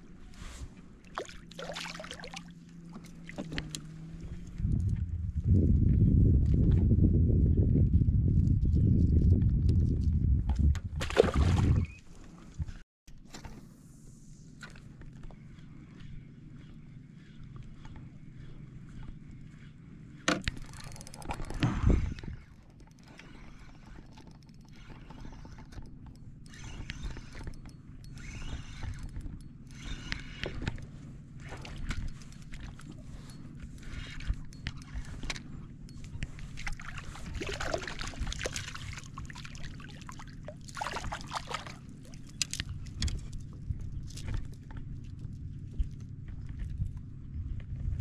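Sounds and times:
boat motor low hum: 0:00.0 - 0:48.0
water splashing against hull: 0:01.0 - 0:03.9, 0:10.9 - 0:12.8, 0:36.2 - 0:47.0.

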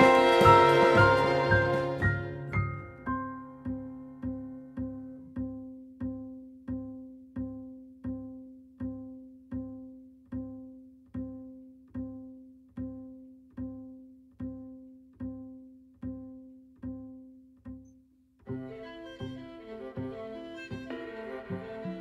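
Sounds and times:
plucked string note: 0:00.0 - 0:11.4.

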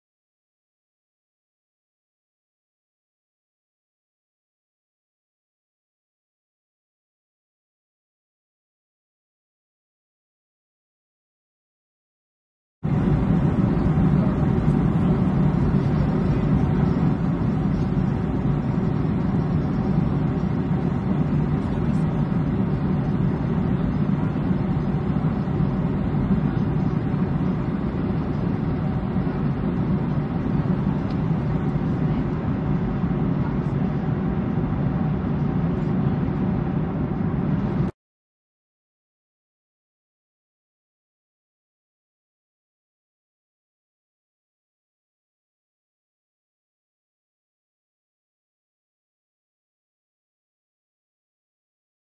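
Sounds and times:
airplane rumble: 0:12.8 - 0:38.0.

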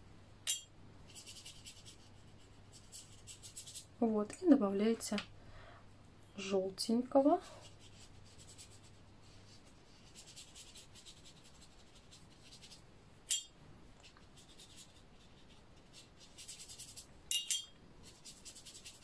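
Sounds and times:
brush rubbing on paper: 0:01.1 - 0:04.0, 0:07.4 - 0:12.9, 0:14.0 - 0:17.1, 0:18.0 - 0:19.0.

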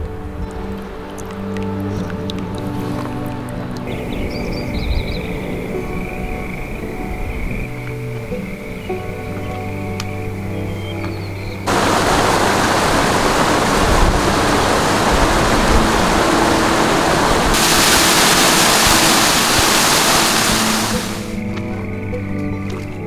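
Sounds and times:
quiet background music: 0:00.0 - 0:23.0
rushing water: 0:11.6 - 0:21.6.

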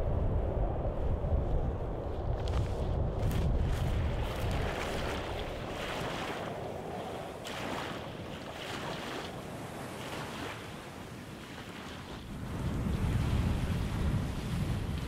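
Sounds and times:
wind: 0:00.0 - 0:15.0
footsteps crunching on gravel: 0:02.4 - 0:05.3
waves lapping the shore: 0:02.4 - 0:15.0.

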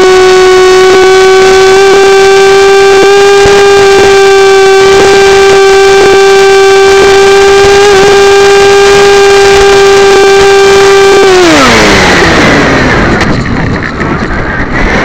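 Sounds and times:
electric motor and propeller whine: 0:00.0 - 0:15.0
rush of air: 0:11.7 - 0:15.0.

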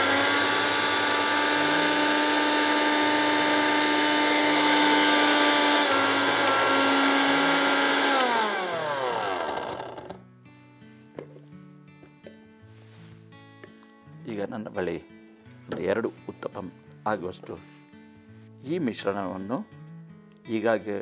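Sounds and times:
mixer grinder motor whine: 0:00.0 - 0:10.2.

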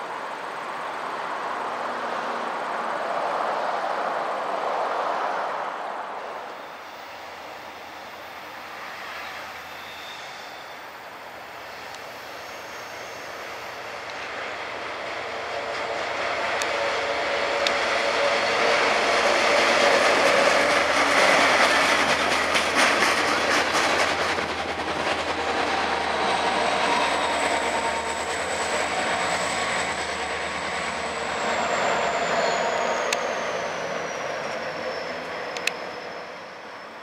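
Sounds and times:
steel train wheels rolling: 0:06.4 - 0:37.0
wheels clicking over rail joints: 0:13.8 - 0:30.8.

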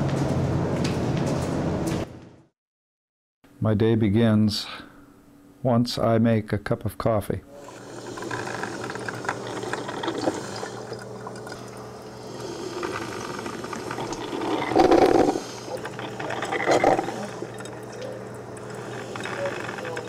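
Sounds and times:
can opener grinding metal lid: 0:07.6 - 0:20.0.

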